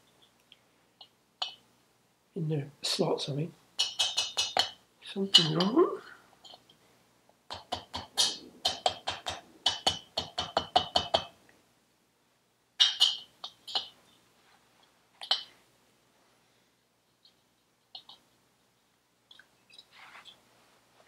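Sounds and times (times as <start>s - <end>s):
hammer tapping on metal: 3.8s - 4.8s, 7.5s - 11.4s.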